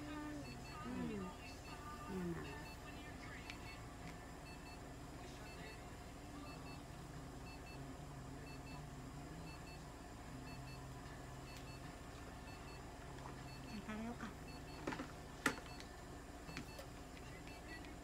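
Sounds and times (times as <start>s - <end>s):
low equipment hum: 0.0s - 18.0s
electronic device beeping: 11.5s - 13.9s.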